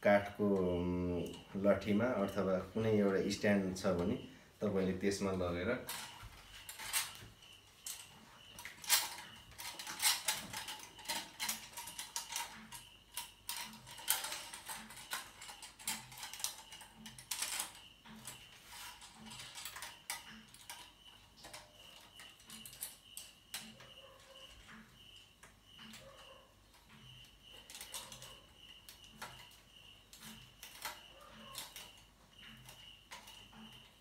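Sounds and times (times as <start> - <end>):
metal clicks and rattles: 5.2 - 24.8.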